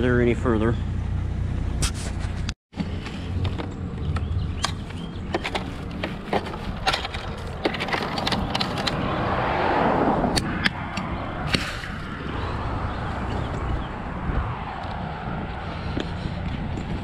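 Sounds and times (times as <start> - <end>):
plastic vacuum parts clattering: 4.7 - 9.0.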